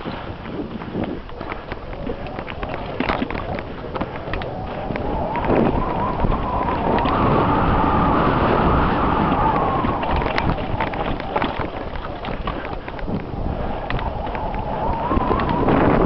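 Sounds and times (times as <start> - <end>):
bike clicks and rattles: 0.0 - 16.0
steady rumble: 0.0 - 16.0
wind rushing over microphone: 0.0 - 16.0
wavering whine: 1.3 - 16.0.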